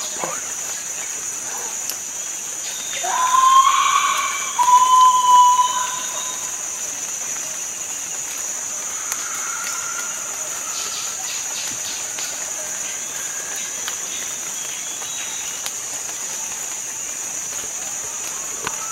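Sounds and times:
insects droning: 0.0s - 18.9s
long whistled calls: 2.8s - 7.0s.

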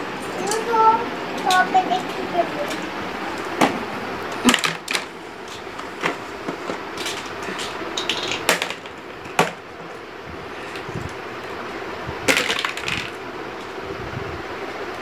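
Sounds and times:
plastic toy pieces clicking: 7.0s - 8.9s, 12.3s - 13.2s.

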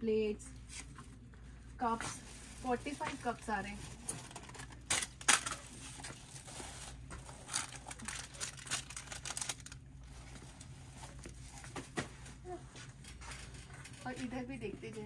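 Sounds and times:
plastic wrap crinkling: 1.8s - 11.7s.

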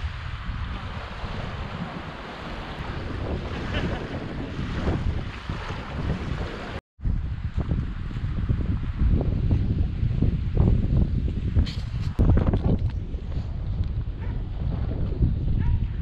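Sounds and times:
small waves washing onto sand: 0.0s - 6.8s
wind rumbling on microphone: 0.0s - 16.0s.

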